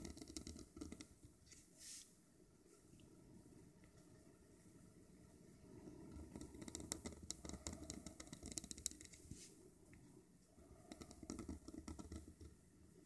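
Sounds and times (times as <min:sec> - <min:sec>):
pen nib scratching on paper: 0:00.0 - 0:01.1, 0:06.1 - 0:09.5, 0:10.8 - 0:12.5.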